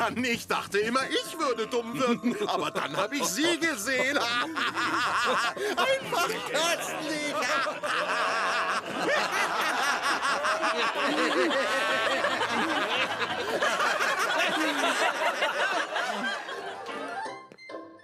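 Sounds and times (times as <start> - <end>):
people laughing and snickering: 0.9 - 17.4.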